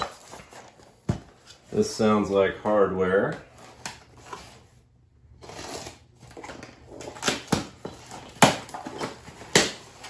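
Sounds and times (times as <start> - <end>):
cardboard scraping and tearing: 5.4 - 10.0.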